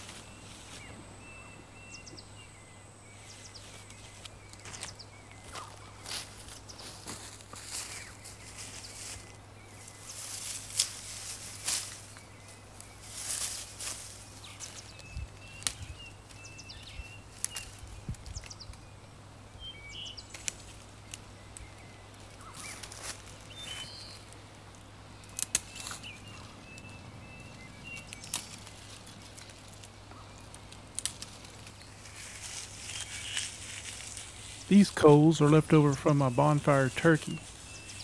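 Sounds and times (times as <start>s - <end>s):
dry leaves crunching underfoot: 0.0s - 2.2s, 3.1s - 18.9s, 19.9s - 38.0s
small birds chirping: 0.0s - 38.0s
sticks snapping: 12.8s - 16.4s, 17.3s - 18.8s, 20.3s - 23.3s, 25.2s - 34.3s.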